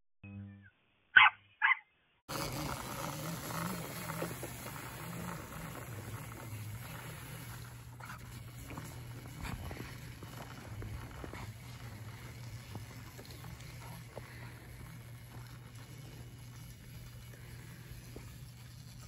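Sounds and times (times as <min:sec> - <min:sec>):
outdoor noise: 0:00.2 - 0:19.0
dog barking: 0:01.2 - 0:01.8
small engine humming: 0:02.3 - 0:19.0.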